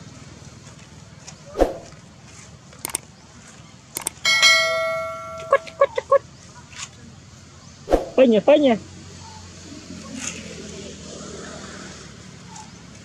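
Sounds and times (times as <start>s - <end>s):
quick clicks: 2.8s - 3.1s, 4.0s - 4.2s
bell-like ding: 4.2s - 6.0s.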